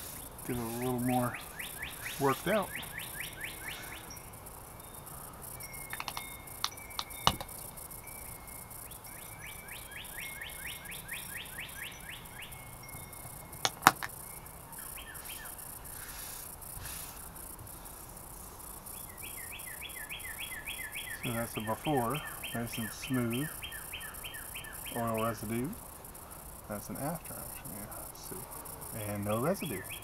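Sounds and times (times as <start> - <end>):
songbird singing descending notes: 0.0 - 15.7, 18.9 - 25.8, 26.7 - 30.0
sharp clicks and taps: 5.9 - 7.6, 13.6 - 14.1.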